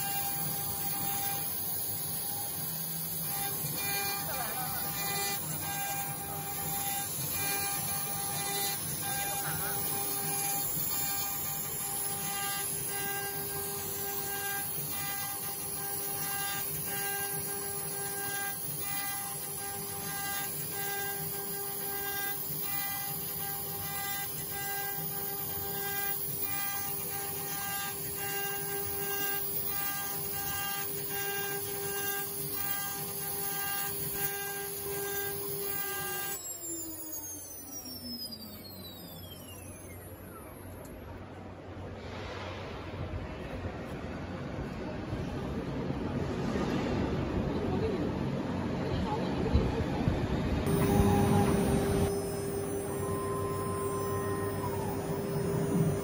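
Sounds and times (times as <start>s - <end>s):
bit cutting wood: 0.0s - 37.2s, 50.7s - 56.0s
router spindle whine: 0.0s - 41.9s, 50.6s - 56.0s.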